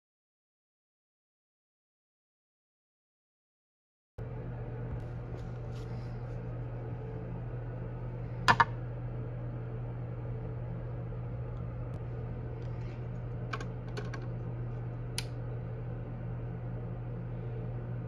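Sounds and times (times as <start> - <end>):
low hum: 4.2 - 18.0.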